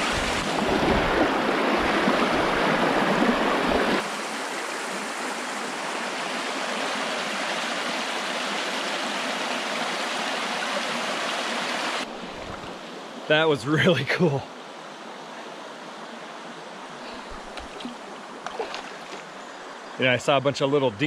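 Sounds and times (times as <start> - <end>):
water rushing over rocks: 0.0 - 13.5.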